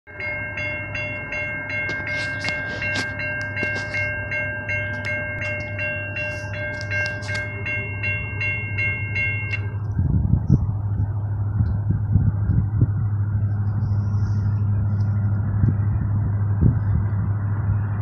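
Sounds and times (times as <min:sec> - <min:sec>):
railroad crossing bell ringing: 0:00.1 - 0:10.0
train rumble: 0:00.1 - 0:18.0.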